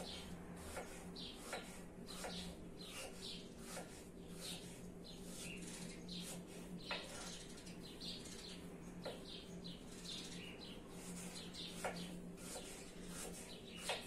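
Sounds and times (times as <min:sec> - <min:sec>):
knife chopping on wooden board: 0:00.0 - 0:04.6, 0:11.7 - 0:14.0
small birds chirping: 0:00.0 - 0:14.0.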